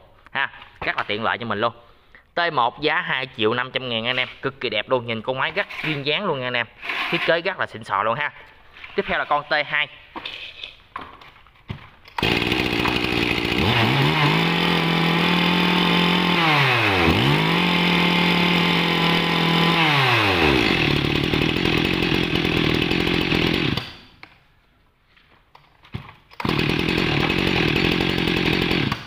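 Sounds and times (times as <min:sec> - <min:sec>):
chainsaw engine revving: 0:12.2 - 0:24.1, 0:26.4 - 0:29.0.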